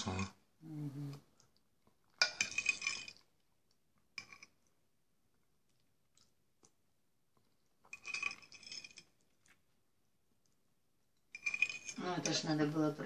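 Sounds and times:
metal spoon scraping ceramic bowl: 2.2 - 3.2, 4.2 - 4.6, 7.9 - 9.1, 11.3 - 12.8.

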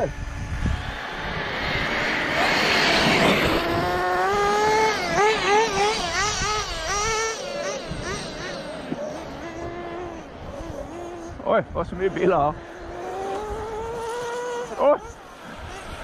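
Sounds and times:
rushing noise: 0.0 - 5.5
rc buggy engine high whine: 0.0 - 16.0.

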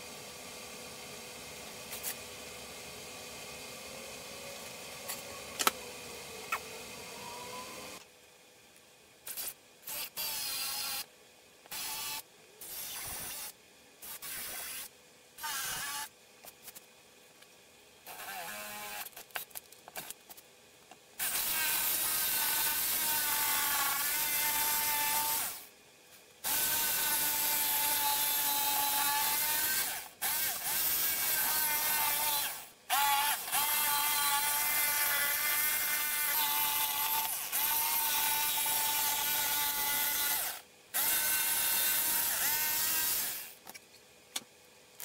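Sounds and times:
jigsaw cutting board: 21.2 - 25.6, 26.4 - 43.6
cordless drill boring into wood: 21.2 - 25.7, 26.4 - 43.6.

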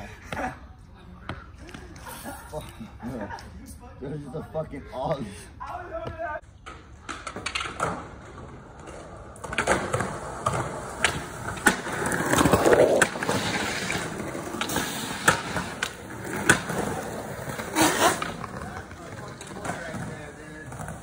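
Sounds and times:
skateboard wheels rolling on concrete: 6.4 - 21.0
skateboard clacks on pavement: 6.6 - 21.0.

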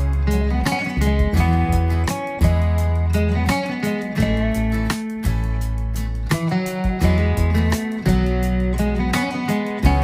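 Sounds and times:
guitar-led music with beat: 0.0 - 10.0.

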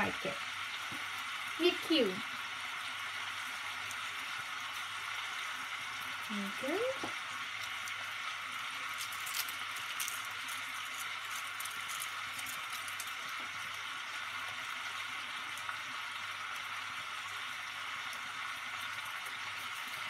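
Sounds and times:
meat sizzling in a frying pan: 0.0 - 20.0
foil wrapper crinkling: 8.8 - 13.6.

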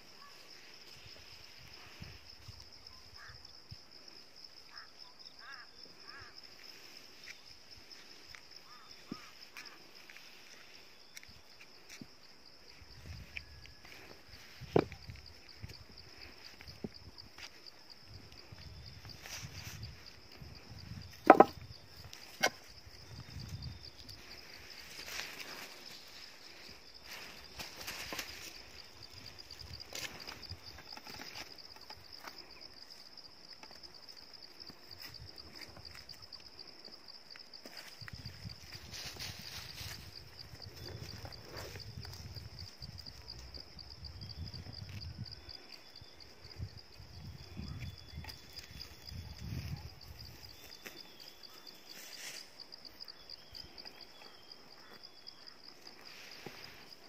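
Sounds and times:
insects chirring: 0.0 - 57.0
footsteps in grass and stones: 6.1 - 32.2, 37.5 - 43.6.

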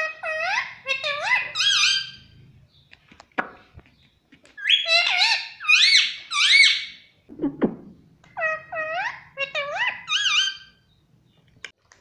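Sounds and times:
parakeet squeaky calls: 0.0 - 2.4, 4.6 - 7.1, 8.3 - 10.8.

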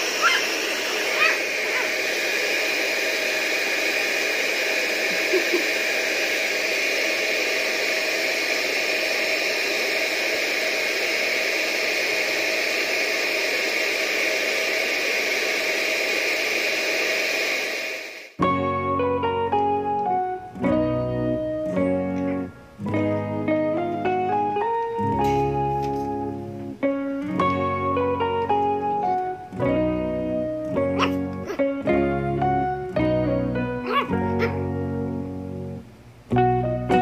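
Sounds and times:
blow dryer running: 0.0 - 20.4.

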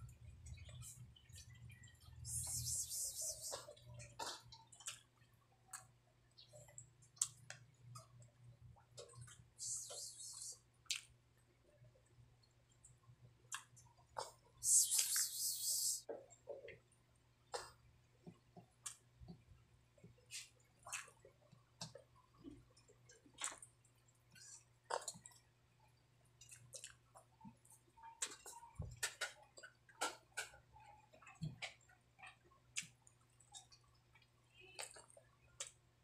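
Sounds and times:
wet chewing and lip smacks: 4.2 - 5.9, 6.6 - 8.3, 10.9 - 11.1, 13.5 - 15.3, 26.4 - 28.6, 31.2 - 35.8.

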